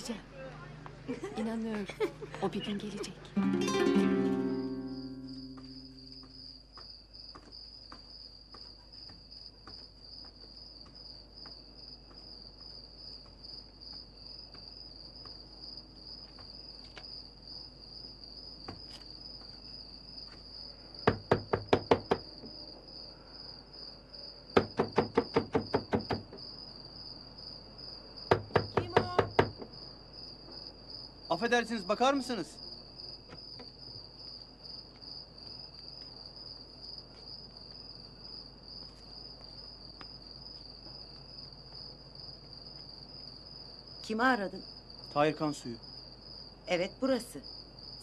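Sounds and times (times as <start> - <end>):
crickets chirping: 0.0 - 48.0
faint footsteps: 0.5 - 2.6, 5.3 - 17.1, 34.8 - 43.4
knocking on a wooden gate: 21.0 - 22.6, 24.6 - 26.4, 28.3 - 29.8.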